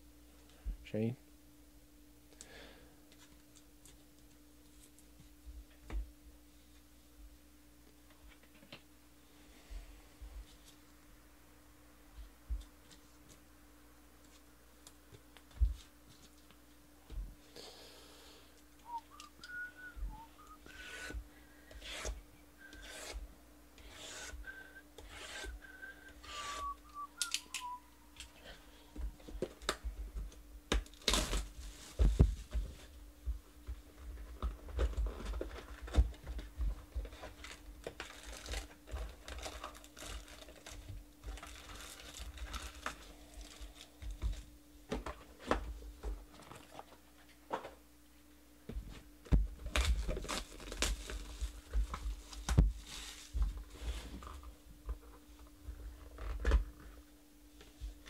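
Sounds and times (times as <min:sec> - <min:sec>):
person whistling softly: 0:18.8 - 0:21.2, 0:22.6 - 0:23.1, 0:24.3 - 0:28.8
foil card packs crinkling: 0:30.8 - 0:32.0, 0:37.0 - 0:44.3, 0:49.6 - 0:53.4.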